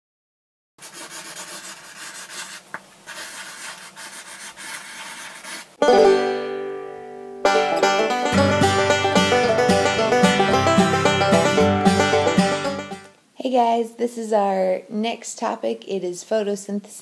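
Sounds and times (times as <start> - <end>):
marker scratching on paper: 0.8 - 5.7
plucked-string music: 5.8 - 13.1
bass line: 7.5 - 13.1.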